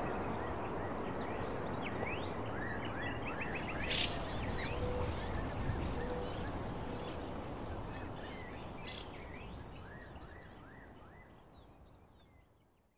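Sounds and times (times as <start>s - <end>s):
pulsing insect trill: 3.6s - 10.6s.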